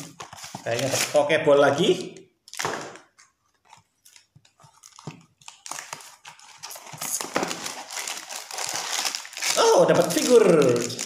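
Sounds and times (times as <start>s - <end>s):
box rustling and scraping: 0.0s - 1.1s.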